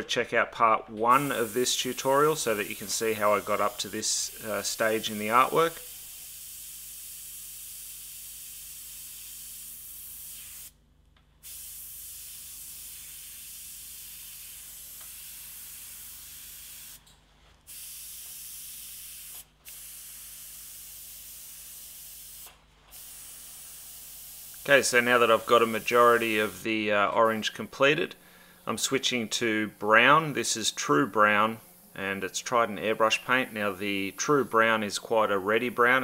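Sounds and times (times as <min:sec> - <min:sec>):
airbrush spraying hiss: 0:01.1 - 0:10.8, 0:11.4 - 0:17.0, 0:17.7 - 0:27.5, 0:32.9 - 0:34.8.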